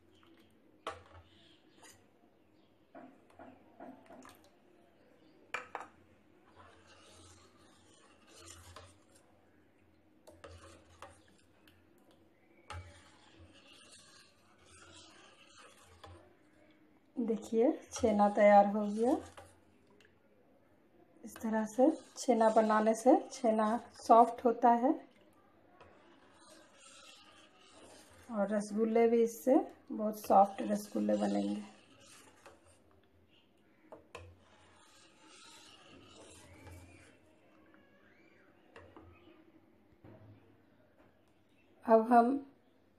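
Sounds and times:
ladle scraping a steel pan: 5.6 - 9.3, 10.2 - 11.8, 12.4 - 16.6, 17.2 - 19.6, 21.3 - 32.9, 33.7 - 37.3.

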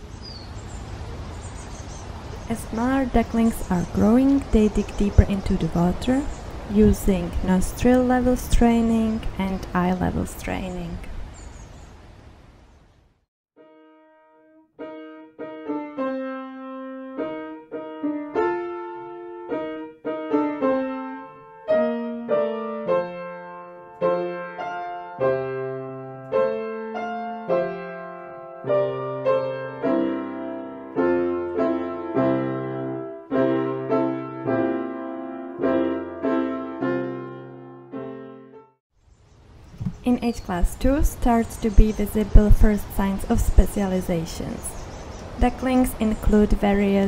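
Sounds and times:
piano music: 13.6 - 38.8.

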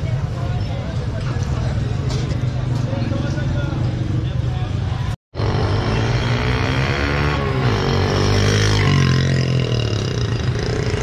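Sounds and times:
vehicle engine revving: 5.4 - 11.0.

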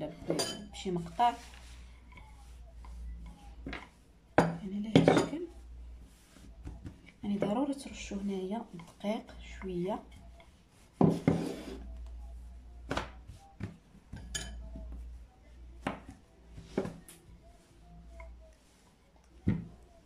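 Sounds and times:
rolling pin rolling dough: 0.0 - 20.0.

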